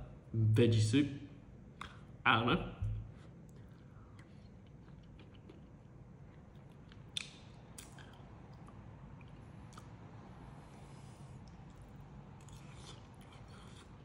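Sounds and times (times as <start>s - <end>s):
faint chewing: 3.1s - 10.0s, 10.6s - 14.0s.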